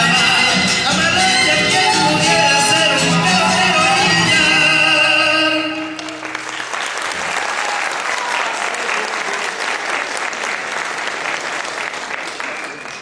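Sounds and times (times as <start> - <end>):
folk dance tune: 0.0 - 6.9
audience applauding: 5.9 - 13.0.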